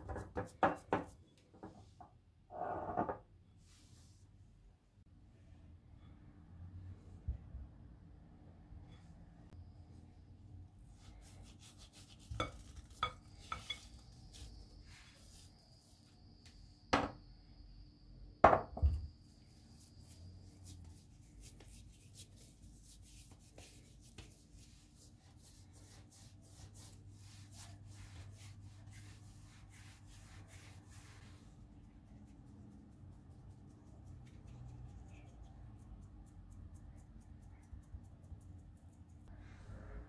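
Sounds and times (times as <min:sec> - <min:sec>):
hands rubbing dough: 0:10.8 - 0:16.6, 0:19.2 - 0:39.3.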